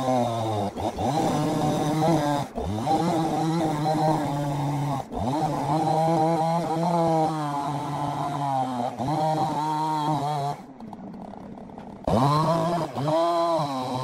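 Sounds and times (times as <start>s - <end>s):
engine running: 0.0s - 14.0s.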